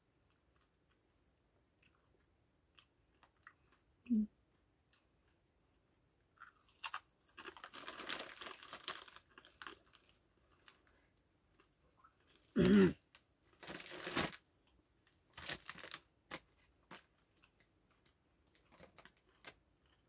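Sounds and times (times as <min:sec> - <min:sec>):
person humming: 0:04.1 - 0:04.3
crisps crunching: 0:06.3 - 0:12.5, 0:13.5 - 0:14.4, 0:15.3 - 0:20.0
crisp packet crinkling: 0:06.4 - 0:12.5, 0:13.5 - 0:20.0.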